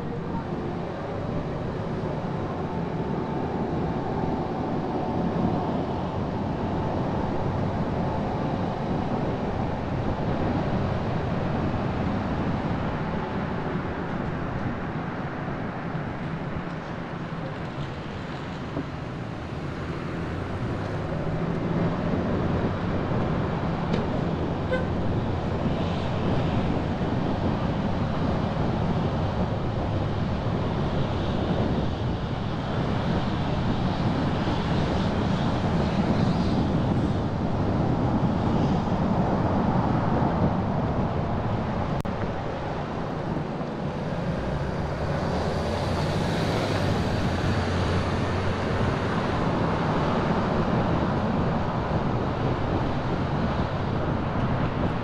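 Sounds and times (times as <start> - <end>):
car engine and road noise: 0.0 - 55.0
surrounding traffic: 0.0 - 55.0.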